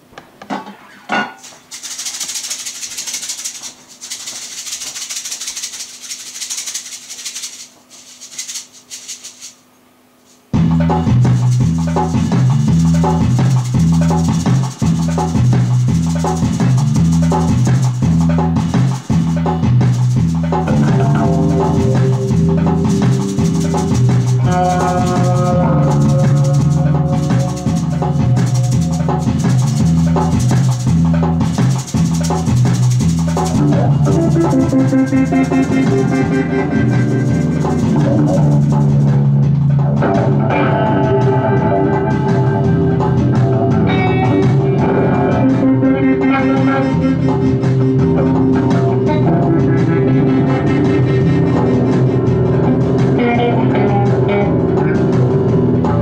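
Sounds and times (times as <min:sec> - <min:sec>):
shaker rattling: 0:01.4 - 0:39.2
instrumental music with beat: 0:01.5 - 0:09.6, 0:10.2 - 0:56.0.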